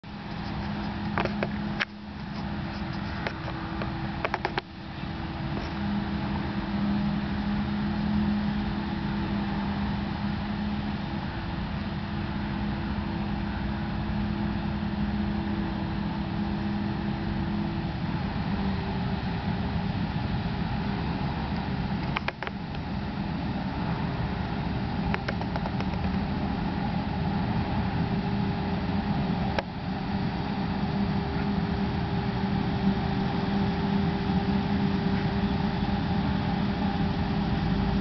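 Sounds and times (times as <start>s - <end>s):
farm machinery engine drone: 0.0s - 38.0s
sharp clicks: 25.1s - 26.2s.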